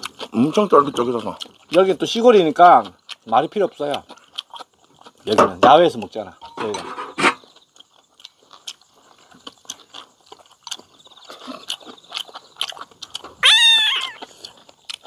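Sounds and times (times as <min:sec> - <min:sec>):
people chewing food: 0:00.0 - 0:15.0
cat meowing: 0:13.4 - 0:14.3.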